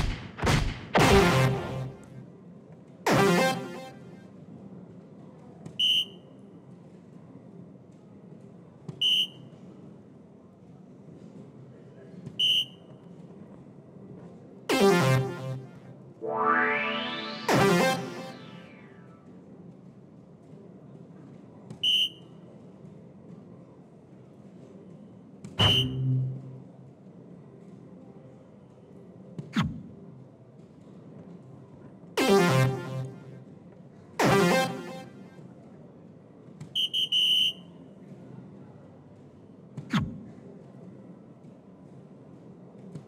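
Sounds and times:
short high electronic beep: 14.7s - 19.0s, 25.6s - 26.6s, 32.2s - 33.3s, 34.2s - 35.2s.

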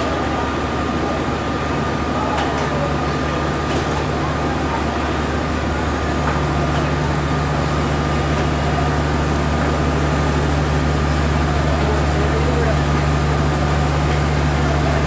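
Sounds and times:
diesel train engine droning: 0.0s - 15.0s
station noise: 2.8s - 15.0s.

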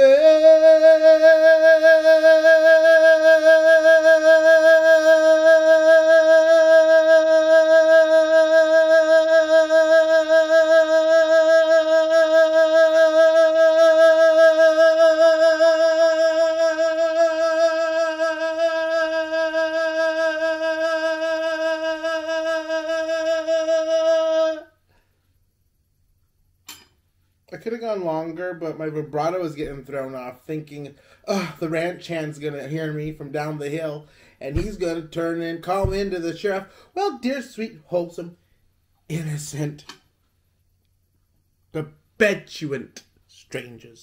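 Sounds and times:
singer holding long note: 0.0s - 24.8s.

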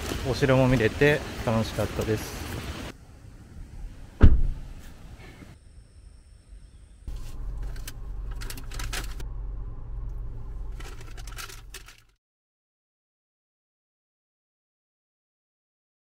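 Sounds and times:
loud thump: 4.2s - 4.7s
paper wrapping crinkling: 7.1s - 9.2s, 10.6s - 12.1s
low engine rumble: 7.1s - 12.2s.

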